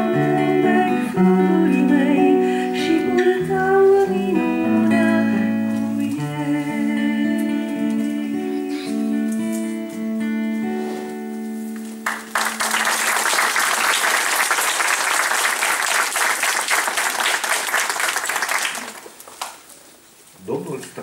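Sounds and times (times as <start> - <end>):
person singing: 0.0 - 10.0
acoustic guitar: 0.0 - 14.6
audience applauding: 12.0 - 19.6.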